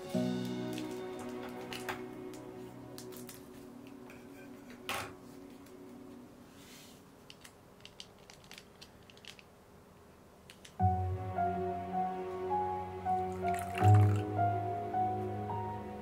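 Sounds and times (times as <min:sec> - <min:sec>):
soft background music: 0:00.0 - 0:07.1, 0:10.8 - 0:16.0.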